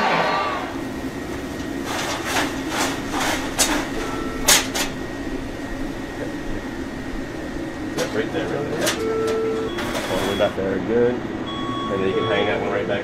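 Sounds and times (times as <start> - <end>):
kitchen equipment hum: 0.0 - 13.0
wire basket clanking on fryer: 1.6 - 5.1, 8.0 - 10.6.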